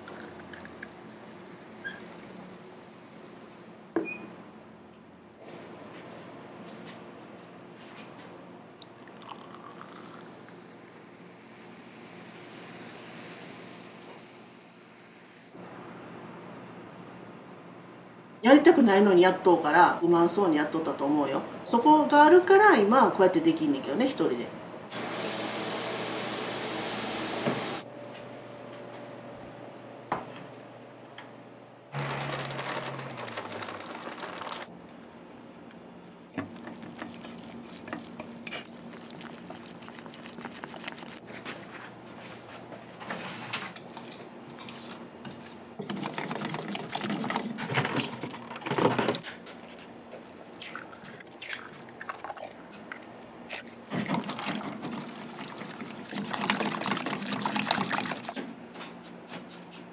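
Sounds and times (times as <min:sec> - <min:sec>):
whisk beating batter in a bowl: 0:36.4 - 0:41.2, 0:45.8 - 0:47.6, 0:53.9 - 0:58.4.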